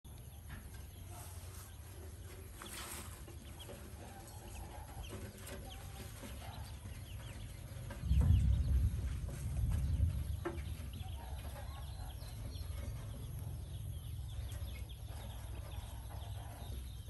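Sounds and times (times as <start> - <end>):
ducklings peeping: 0.1 - 17.0
loud low rumble: 7.8 - 11.1.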